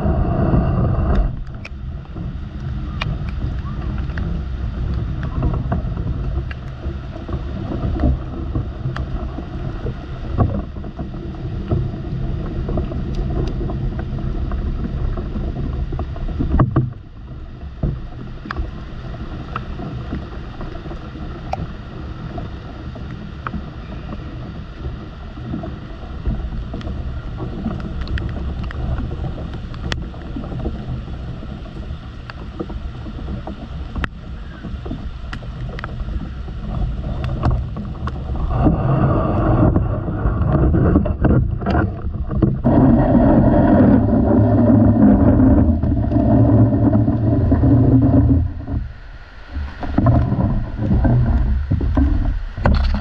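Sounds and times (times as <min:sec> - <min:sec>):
low rumble: 0:00.0 - 0:53.0
raindrops tapping on camera: 0:17.6 - 0:49.0.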